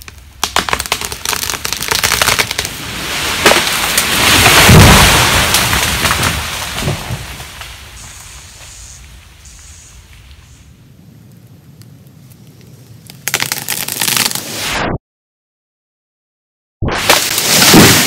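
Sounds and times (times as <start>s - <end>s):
tree wood cracking: 0.0s - 8.7s, 11.3s - 14.4s
branches and leaves crashing: 0.0s - 9.0s, 13.2s - 14.6s, 17.0s - 18.0s
tree trunk crashing to ground: 0.1s - 8.0s, 13.2s - 14.4s, 17.0s - 18.0s.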